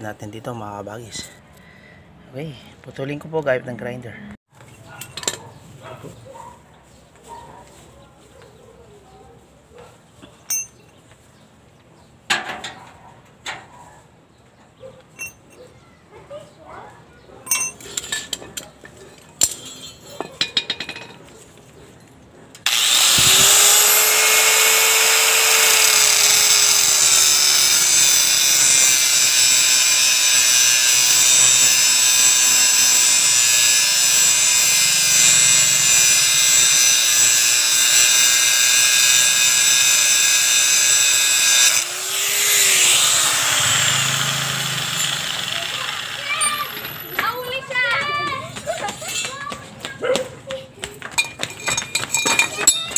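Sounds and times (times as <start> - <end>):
metal clinks and knocks: 10.4 - 11.0, 15.1 - 15.7, 17.4 - 21.3, 51.2 - 52.9
angle grinder cutting metal: 22.7 - 47.2.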